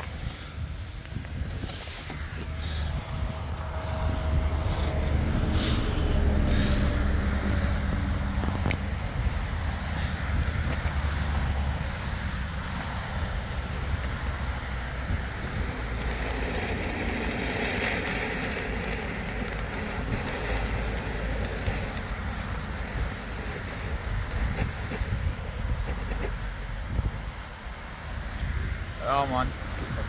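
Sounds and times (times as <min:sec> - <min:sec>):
firework fuse burning: 0:00.0 - 0:28.4
wind rumbling on microphone: 0:00.0 - 0:30.0
firework fountain hissing: 0:04.6 - 0:08.1, 0:09.0 - 0:26.7.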